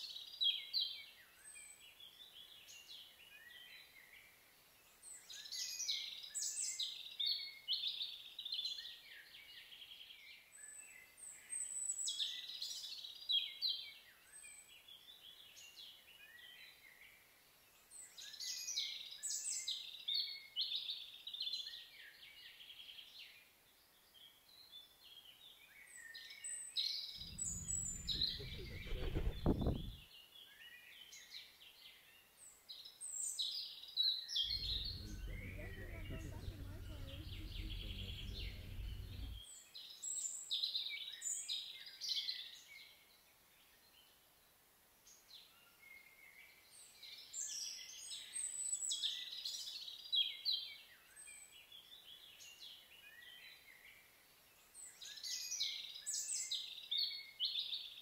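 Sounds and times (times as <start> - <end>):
low rumble: 27.2 - 30.0, 34.5 - 39.4
songbirds chirping and trilling: 27.2 - 30.0, 34.4 - 39.4.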